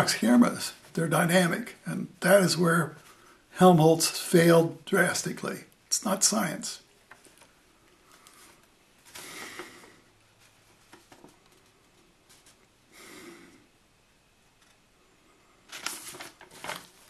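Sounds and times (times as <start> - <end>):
person speaking: 0.0 - 6.9
soft breaths: 2.9 - 3.6, 7.3 - 13.9.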